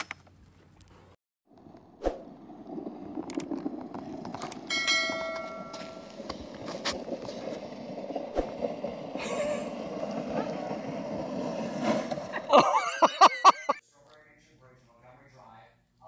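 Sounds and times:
plastic sled scraping on snow: 1.5 - 13.2
bright bell ding: 4.7 - 6.1.

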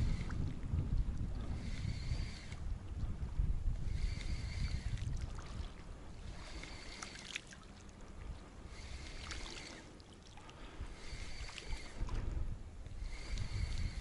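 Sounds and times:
spinning reel whirring: 0.0 - 2.8, 3.7 - 5.0, 6.2 - 7.3, 8.7 - 9.9, 11.0 - 14.0
wind buffeting microphone: 0.0 - 7.2, 10.5 - 14.0
light clicks of tackle: 0.0 - 14.0.

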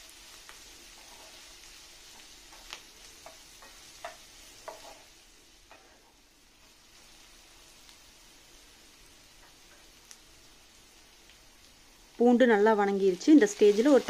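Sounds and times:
faint sizzle of frying: 0.0 - 14.0
spatula tapping and scraping pan: 0.9 - 6.2, 9.4 - 9.9.

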